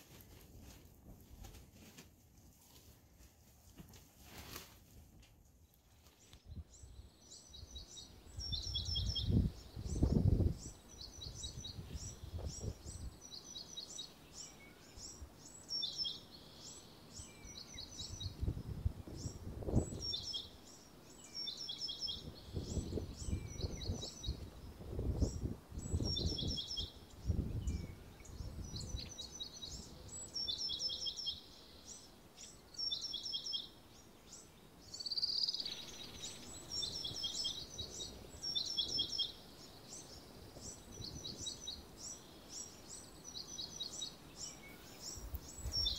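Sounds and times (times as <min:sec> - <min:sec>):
small birds calling: 0:05.7 - 0:45.9
wind rumbling on microphone: 0:06.4 - 0:13.4, 0:18.0 - 0:20.5, 0:22.0 - 0:30.1, 0:40.3 - 0:41.8, 0:45.0 - 0:45.9.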